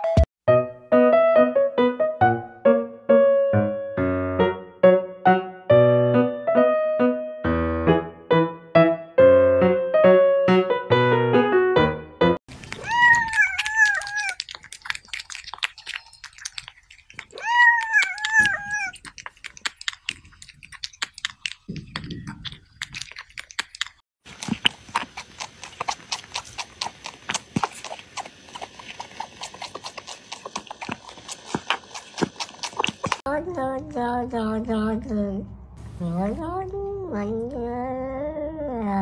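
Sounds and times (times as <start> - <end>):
cat eating with mouth clicks: 12.5 - 33.2
cat sucking and slurping: 12.5 - 33.3
cat meowing: 12.6 - 14.4, 17.2 - 19.0.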